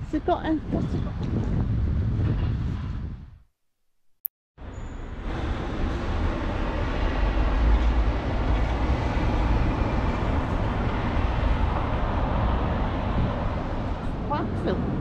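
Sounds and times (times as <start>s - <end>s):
road traffic rumble: 4.6s - 15.0s.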